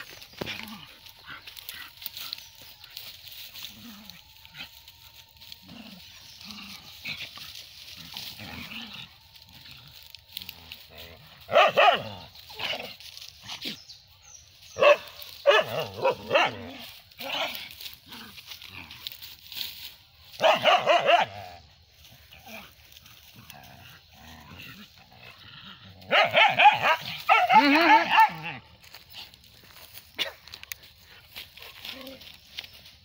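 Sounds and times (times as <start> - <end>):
dogs barking: 10.4 - 13.6, 14.7 - 17.7, 20.3 - 21.7, 26.0 - 29.2.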